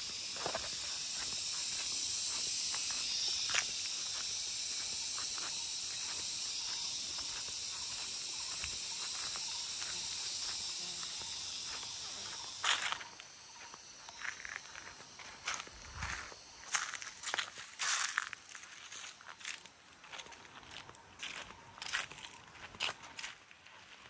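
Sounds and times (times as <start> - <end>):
footsteps crunching on dry leaves: 0.0 - 24.0
high insect drone: 0.0 - 24.0.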